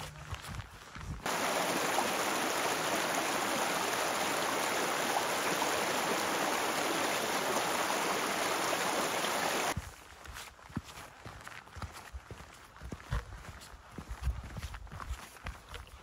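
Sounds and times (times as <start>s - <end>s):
stream rushing over rocks: 1.2s - 9.8s.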